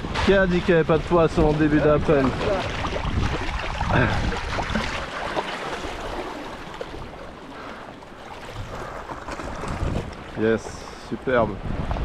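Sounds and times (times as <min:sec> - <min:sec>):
water washing over rocks: 0:00.0 - 0:10.6
wind on microphone: 0:01.3 - 0:05.0, 0:08.4 - 0:10.4, 0:11.4 - 0:12.0.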